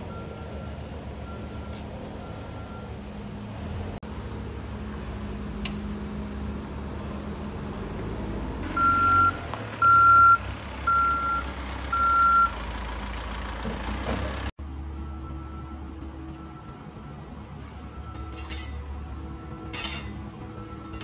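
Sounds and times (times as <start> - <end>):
diesel engine running: 0.0 - 21.0
reversing alarm beeping: 8.8 - 12.6, 14.9 - 19.7, 20.4 - 21.0.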